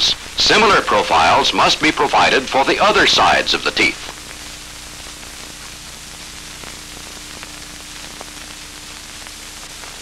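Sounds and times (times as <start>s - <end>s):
faint steady hum: 0.0s - 10.0s
film soundtrack hiss: 0.0s - 10.0s.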